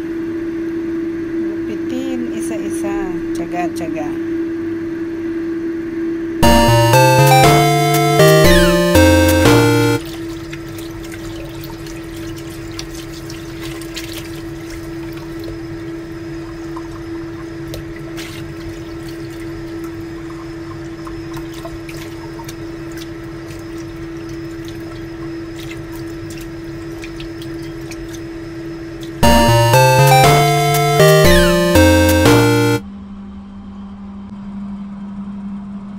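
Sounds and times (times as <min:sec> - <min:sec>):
music: 0:06.4 - 0:10.0, 0:29.2 - 0:32.8.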